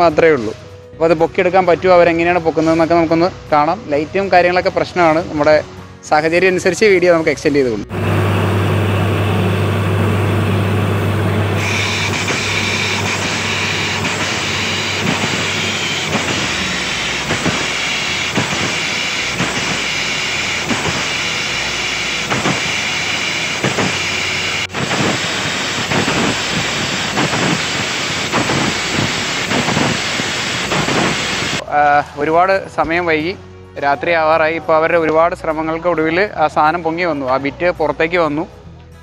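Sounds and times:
drilling rig running: 7.9 - 31.6
compressed air hiss: 11.6 - 31.6.

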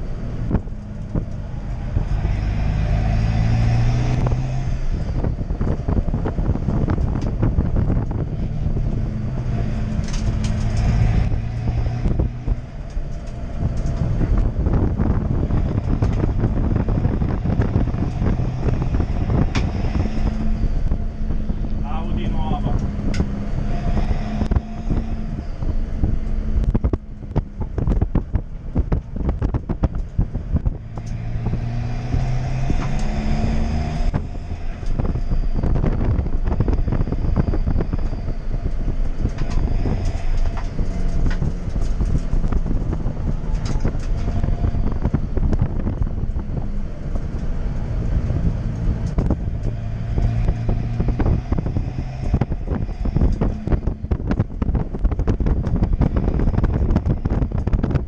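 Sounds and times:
car engine revving through gears: 0.0 - 58.0.

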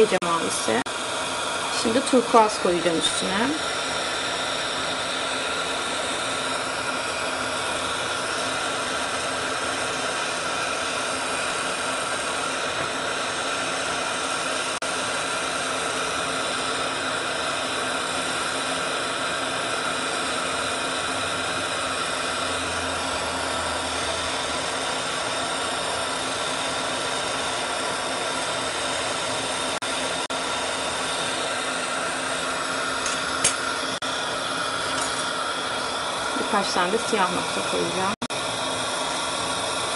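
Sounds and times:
torch flame hissing: 0.0 - 39.9.

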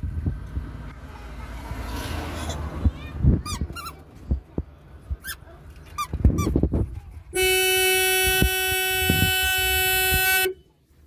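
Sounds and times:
car horn blast: 7.4 - 10.7.

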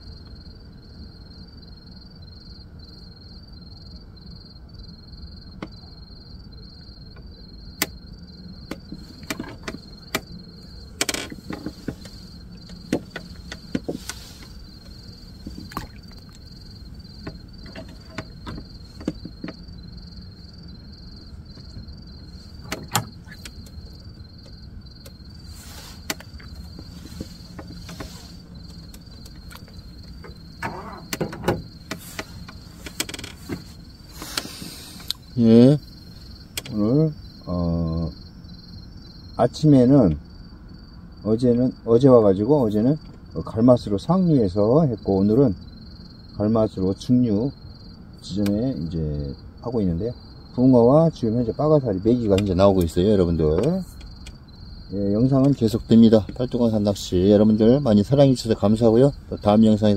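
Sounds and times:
night insects trilling: 0.0 - 59.9
handling clicks and rustles: 8.7 - 19.6, 21.2 - 35.4.

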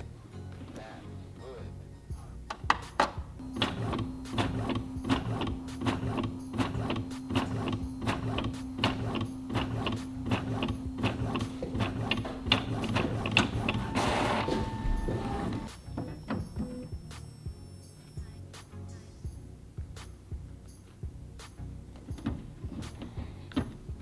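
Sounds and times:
printer motors humming: 3.4 - 17.4
rapid clicks of paper feeding: 3.6 - 15.6.

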